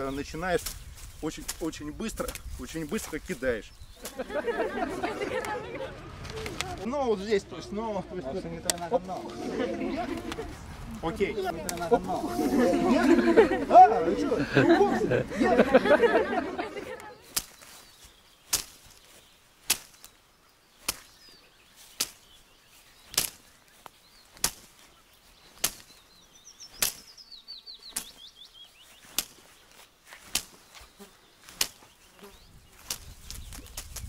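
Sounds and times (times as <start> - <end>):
slapping cracks of jabs: 8.6 - 9.4, 10.0 - 12.2, 16.4 - 17.7, 18.5 - 19.0, 19.6 - 20.2, 20.8 - 21.2, 21.9 - 22.4, 23.0 - 23.6, 24.3 - 24.9, 25.5 - 26.0, 26.7 - 27.1, 27.9 - 28.2, 29.0 - 29.5, 30.1 - 31.9, 32.8 - 34.0.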